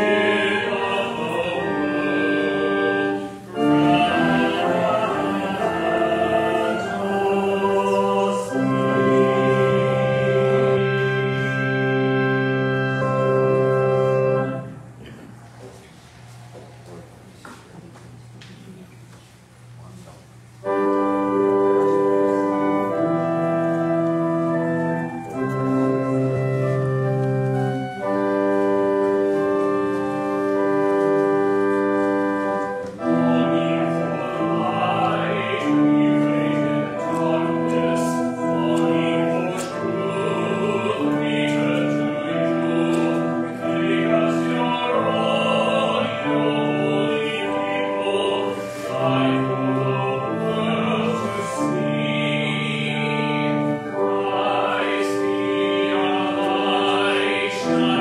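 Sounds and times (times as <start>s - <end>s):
voices singing: 0.0s - 15.2s, 32.7s - 58.0s
organ playing a hymn: 0.0s - 16.9s, 20.4s - 58.0s.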